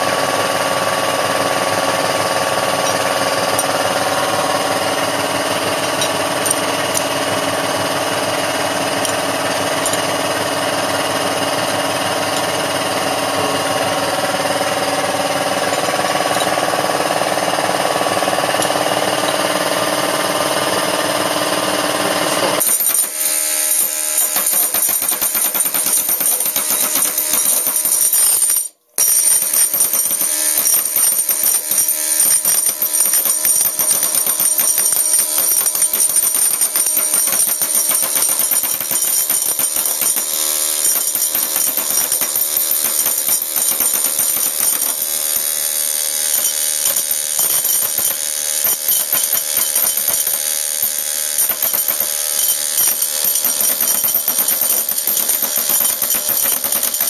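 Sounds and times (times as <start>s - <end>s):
pneumatic chisel hammering wood: 0.0s - 57.0s.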